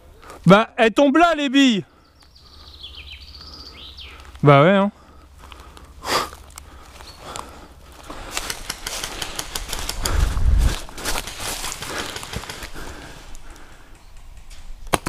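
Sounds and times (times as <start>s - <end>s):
dry leaves rustling and crunching: 6.3s - 13.0s.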